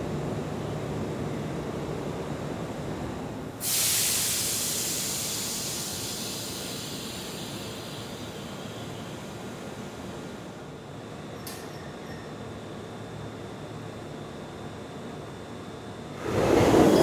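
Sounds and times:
compressed air hissing: 0:03.6 - 0:08.4
train rumbling: 0:16.1 - 0:17.0.

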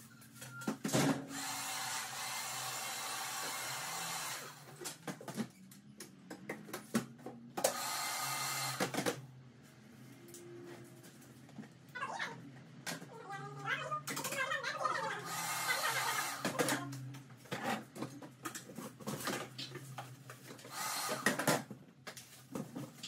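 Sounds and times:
electric hair clipper running: 0:01.3 - 0:04.7, 0:07.6 - 0:08.9, 0:15.2 - 0:16.6, 0:20.7 - 0:21.3.

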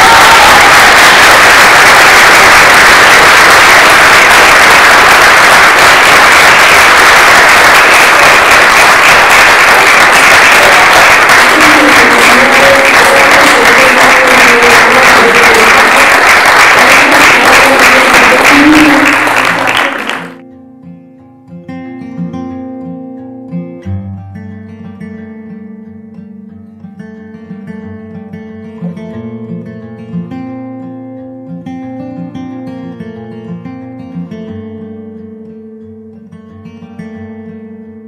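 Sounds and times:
audience applauding: 0:00.0 - 0:20.4.

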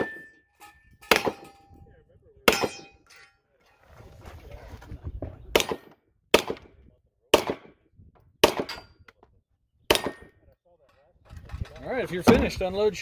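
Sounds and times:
handgun shots with echo: 0:01.1 - 0:01.6, 0:05.6 - 0:06.7, 0:07.4 - 0:07.7.

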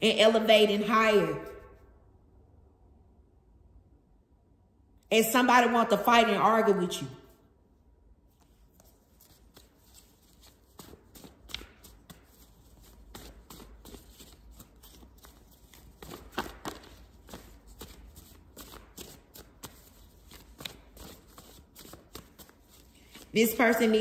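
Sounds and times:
cards being shuffled: 0:08.4 - 0:23.3.

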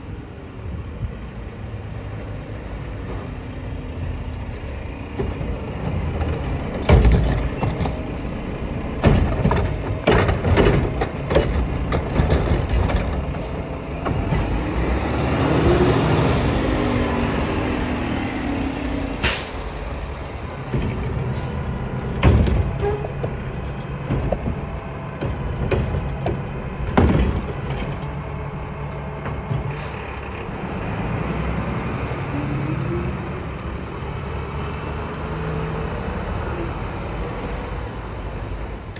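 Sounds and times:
metal clanks and bangs: 0:05.2 - 0:08.2, 0:09.0 - 0:14.8, 0:20.6 - 0:28.2
garbage truck engine revving: 0:05.2 - 0:38.3
air brake hiss: 0:19.2 - 0:19.6.

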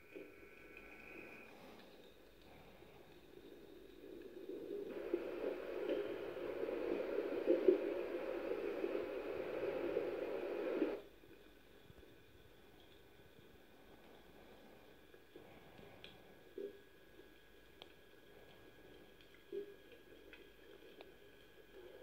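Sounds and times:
muffled rushing noise: 0:04.9 - 0:11.0.

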